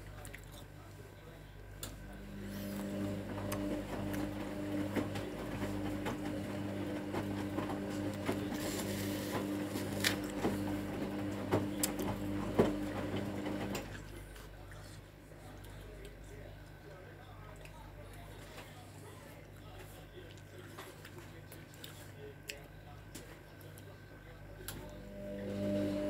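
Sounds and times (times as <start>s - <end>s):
washing machine motor humming: 1.6s - 14.6s, 24.3s - 26.0s.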